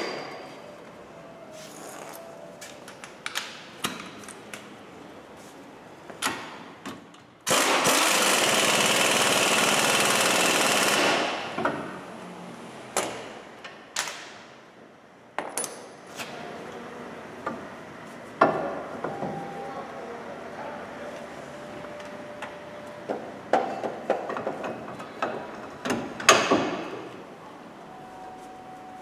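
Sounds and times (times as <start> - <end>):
pneumatic air tool burst: 7.5 - 11.5.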